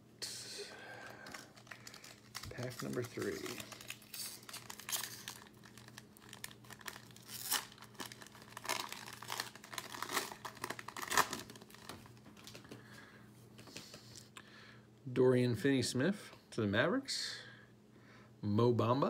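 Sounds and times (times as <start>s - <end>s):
foil wrapper tearing and crinkling: 1.0s - 12.6s.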